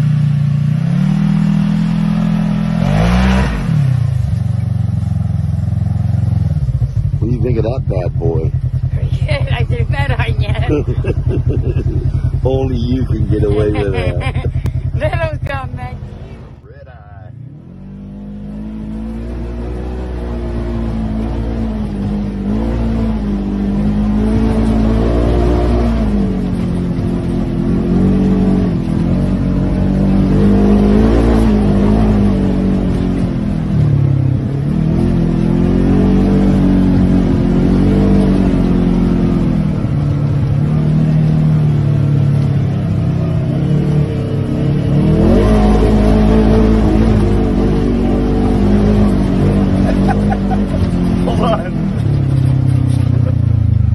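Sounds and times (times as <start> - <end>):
engine revving under load: 0.0 - 53.9.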